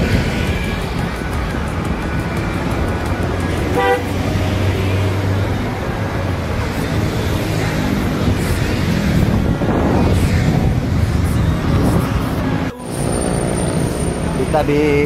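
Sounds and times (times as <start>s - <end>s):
road traffic rumble: 0.0s - 15.0s
vehicle horn toot: 3.7s - 4.1s.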